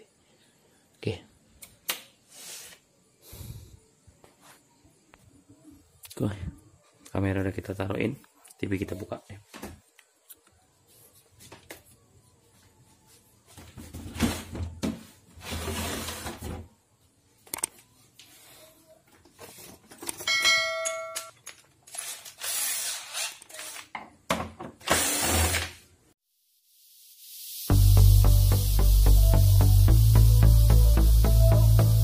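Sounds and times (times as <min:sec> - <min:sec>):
cordless drill running: 0:22.0 - 0:23.3, 0:24.8 - 0:25.7.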